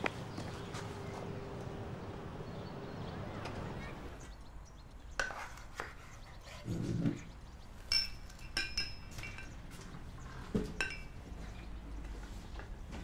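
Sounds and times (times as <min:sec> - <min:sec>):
crockery and cutlery clinking: 0:07.9 - 0:09.8, 0:10.6 - 0:11.6.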